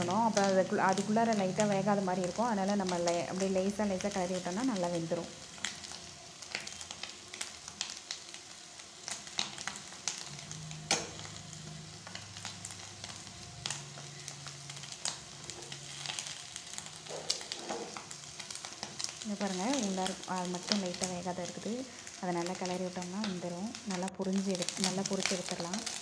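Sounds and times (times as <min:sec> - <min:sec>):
food sizzling in oil: 0:00.0 - 0:26.0
spoon scraping pan: 0:17.1 - 0:18.1.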